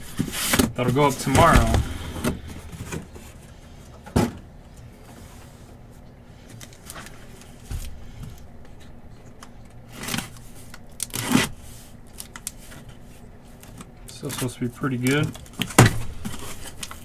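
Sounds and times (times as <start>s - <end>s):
cardboard box knocks and thumps: 0.2s - 3.1s.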